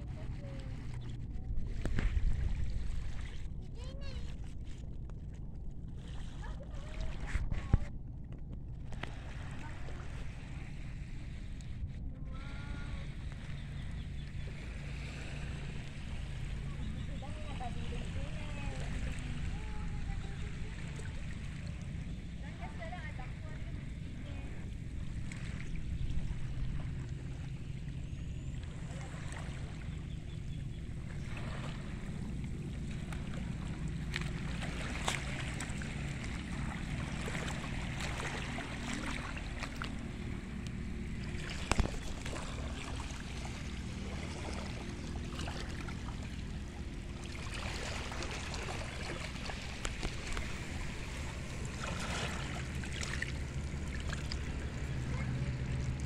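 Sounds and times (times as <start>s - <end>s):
low rumble: 0.0s - 56.0s
seawater lapping through seaweed: 0.0s - 56.0s.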